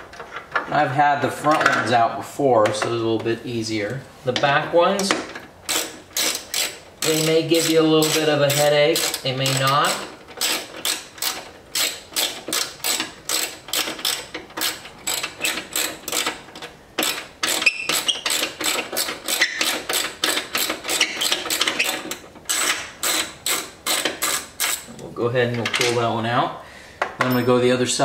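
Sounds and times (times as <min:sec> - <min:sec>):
ratcheting driver clicking: 0:05.0 - 0:25.0.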